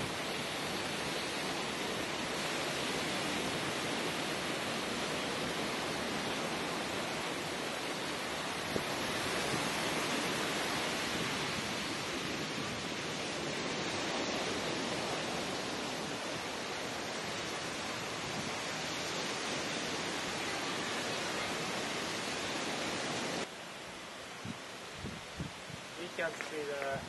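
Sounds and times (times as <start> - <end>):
surf washing up a beach: 0.0 - 27.0.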